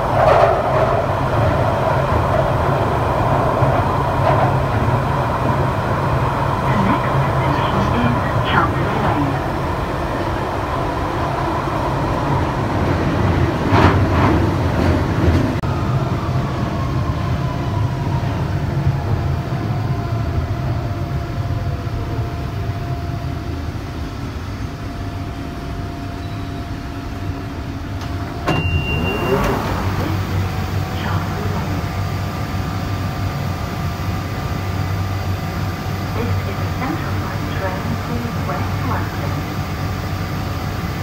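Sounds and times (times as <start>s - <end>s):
train clacks: 0.0s - 15.9s, 27.9s - 41.0s
train rumbling: 0.0s - 41.0s
train whine: 0.0s - 41.0s
short high beep: 28.5s - 29.6s.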